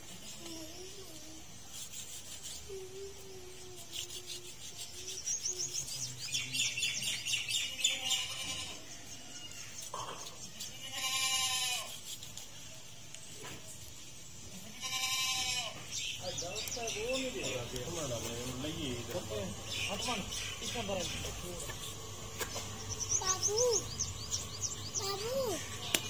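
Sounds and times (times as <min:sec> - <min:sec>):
small birds chirping: 0:00.0 - 0:26.0
goat bleating: 0:07.6 - 0:08.8, 0:10.6 - 0:12.0, 0:14.7 - 0:15.9.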